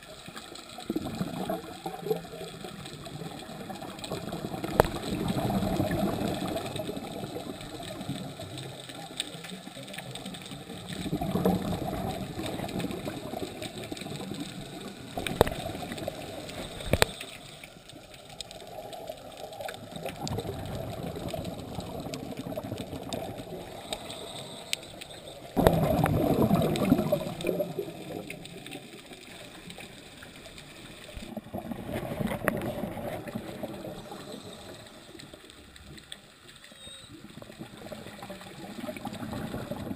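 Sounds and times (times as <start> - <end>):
underwater bubbles gurgling: 0.0 - 39.9.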